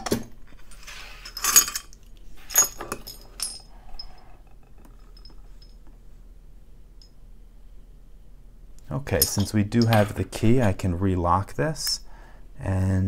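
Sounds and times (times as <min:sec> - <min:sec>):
metal tools clinking and rattling: 0:00.6 - 0:05.8, 0:09.1 - 0:10.2.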